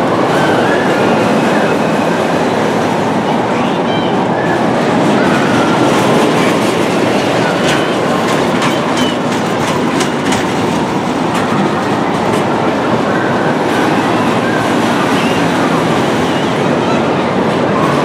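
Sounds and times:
roller coaster wheels rumbling: 0.0s - 18.0s
sharp clicks and clacks: 5.5s - 12.6s.

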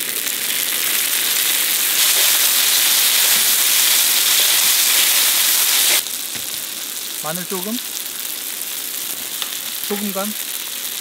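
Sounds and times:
oil sizzling on hot pan: 0.0s - 11.0s.

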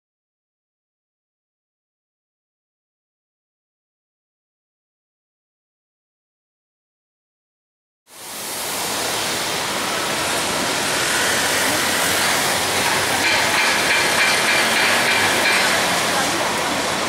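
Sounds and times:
city street traffic: 8.1s - 17.0s
motor scooter passing: 9.4s - 16.9s.

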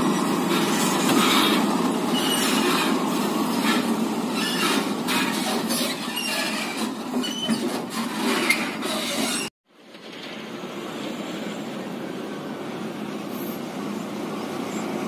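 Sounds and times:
truck running noise: 0.0s - 15.0s
short high squeals: 0.2s - 3.0s, 3.7s - 9.5s.

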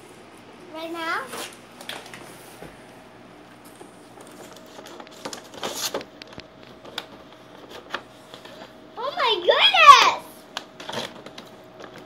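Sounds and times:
plastic packaging crinkling: 4.2s - 7.9s.

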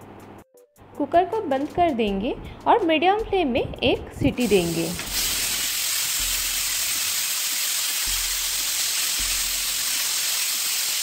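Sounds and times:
pressure cooker steam hissing: 4.4s - 11.0s.

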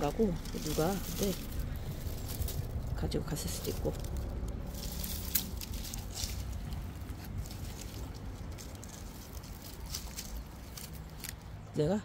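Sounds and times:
net trap rustles and knocks: 0.0s - 3.0s
low steady rumble: 0.0s - 11.8s.

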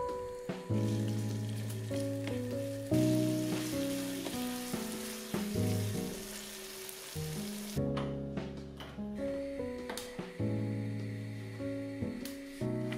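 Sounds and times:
background music of picked notes: 0.0s - 12.9s
vegetables sizzling in a frying pan: 0.4s - 7.8s.

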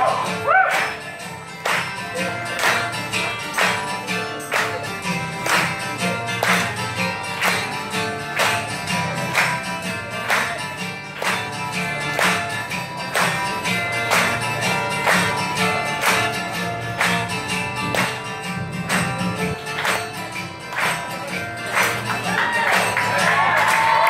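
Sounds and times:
acoustic guitars strumming: 0.0s - 24.0s.

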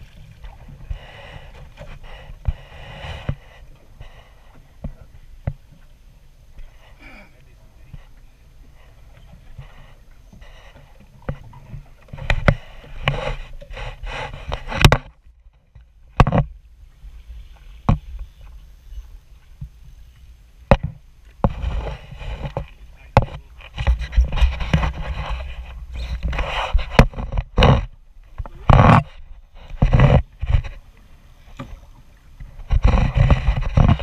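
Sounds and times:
water sloshing against boat hull: 0.0s - 34.0s
knocks against boat: 20.7s - 21.6s
wind on microphone: 20.8s - 30.8s, 31.6s - 34.0s.

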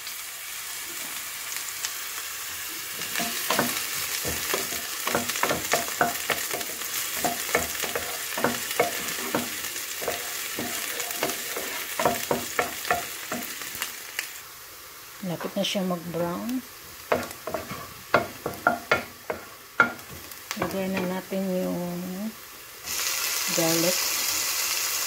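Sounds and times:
onion sizzling in hot oil: 0.0s - 25.0s
wooden spoon scraping a pan: 3.0s - 13.8s, 17.1s - 21.2s.

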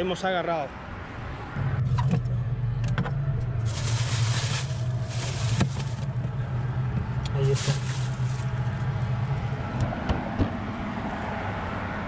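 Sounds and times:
road traffic hum: 0.0s - 12.0s
plastic bag rustling: 3.6s - 6.1s, 7.4s - 8.6s.

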